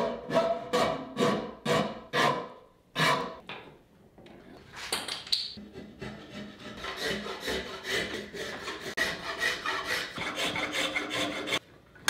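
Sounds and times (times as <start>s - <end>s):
hand rasp scraping wood: 5.6s - 11.6s.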